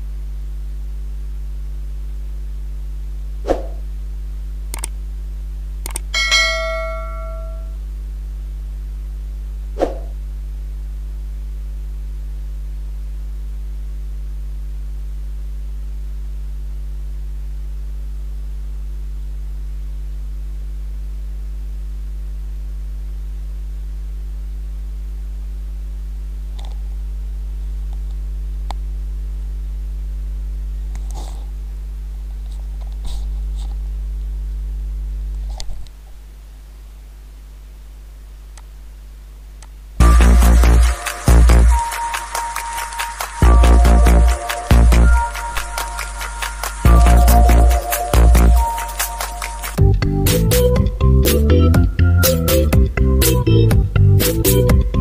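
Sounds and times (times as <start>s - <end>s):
low electrical hum: 0.0s - 55.0s
sharp clicks: 4.7s - 5.0s, 5.8s - 6.1s
bell-like ding: 6.2s - 7.8s.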